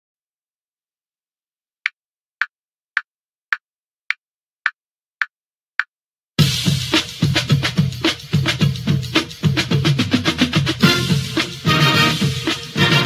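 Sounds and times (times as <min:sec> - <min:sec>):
music with drums: 0:06.4 - 0:13.0.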